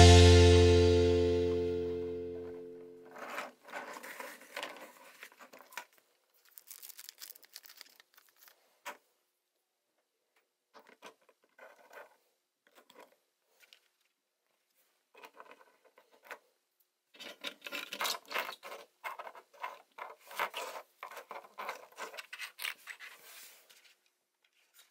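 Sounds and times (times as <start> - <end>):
plastic toys clicking and scraping: 3.1 - 9.0, 10.8 - 14.1, 17.1 - 24.9.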